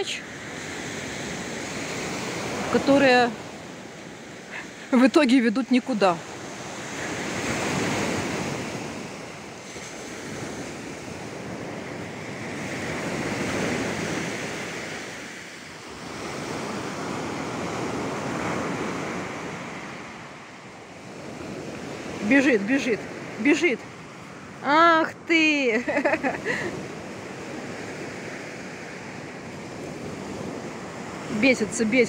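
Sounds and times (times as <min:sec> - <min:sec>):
surf washing onto beach: 0:00.0 - 0:32.0.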